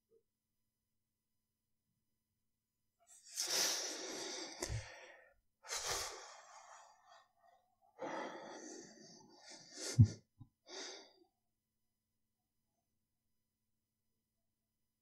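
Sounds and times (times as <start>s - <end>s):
man breathing close to microphone: 3.3s - 11.2s.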